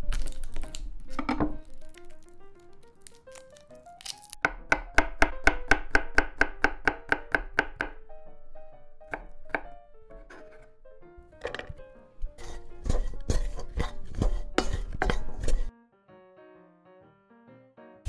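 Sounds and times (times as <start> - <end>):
knife chopping on wooden board: 4.4 - 8.0, 9.1 - 10.7, 11.4 - 11.8, 12.4 - 15.7.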